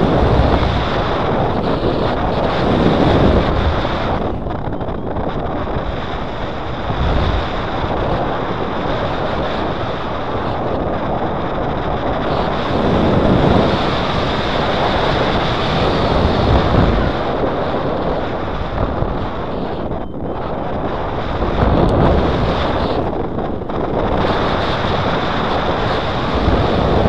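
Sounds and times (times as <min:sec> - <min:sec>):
wind rushing over microphone: 0:00.0 - 0:27.0
faint steady high tone: 0:19.2 - 0:21.1.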